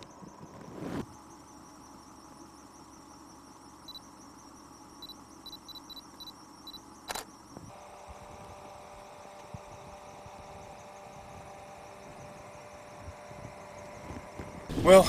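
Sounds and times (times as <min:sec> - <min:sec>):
insect trill: 0:00.0 - 0:15.0
camera autofocus beeps: 0:05.0 - 0:07.6
camera shutter click: 0:07.1 - 0:07.3.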